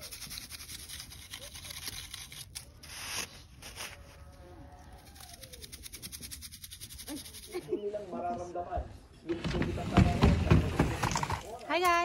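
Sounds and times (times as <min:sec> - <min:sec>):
plastic scoop scraping snow: 0:00.4 - 0:04.4.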